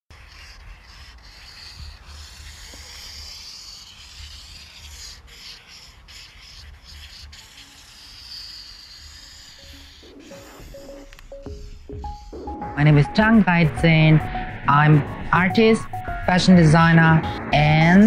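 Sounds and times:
scratchy rubbing noise: 0:00.1 - 0:18.0
uneven low rumble: 0:12.7 - 0:18.0.

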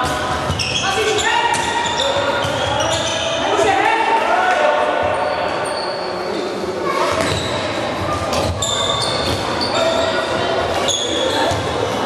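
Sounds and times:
shoes squeaking on court floor: 0:00.0 - 0:03.6, 0:07.0 - 0:12.0.

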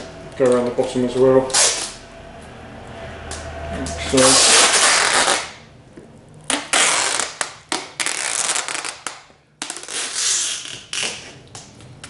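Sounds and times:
plastic film crackling: 0:04.2 - 0:05.7, 0:06.4 - 0:11.6
tape pulled off roll: 0:04.2 - 0:05.7, 0:06.5 - 0:11.9.

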